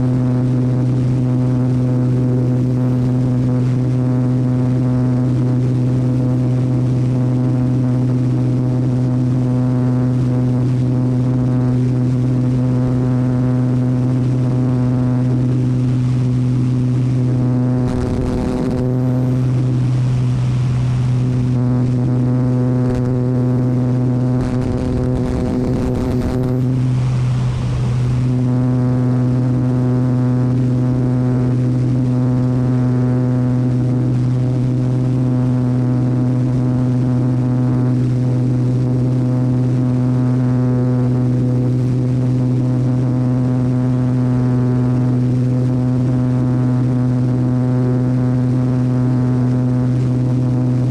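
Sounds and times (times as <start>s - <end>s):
airplane engine droning: 0.0s - 50.9s
wind noise: 10.0s - 30.2s.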